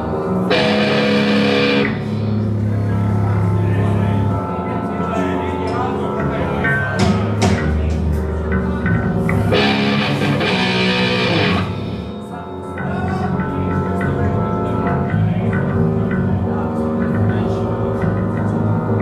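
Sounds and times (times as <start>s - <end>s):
live rock band playing: 0.5s - 2.3s, 9.3s - 12.2s.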